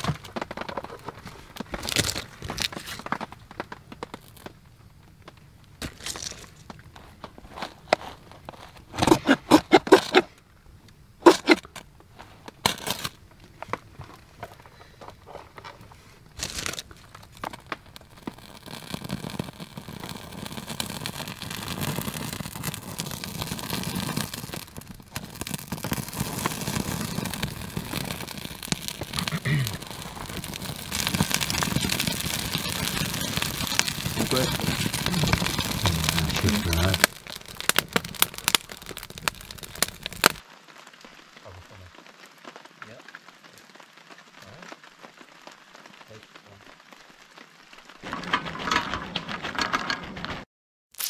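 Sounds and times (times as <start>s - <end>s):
burning bark crackling: 0.0s - 51.0s
ferro rod scraping sparks: 11.2s - 11.8s, 16.4s - 40.4s.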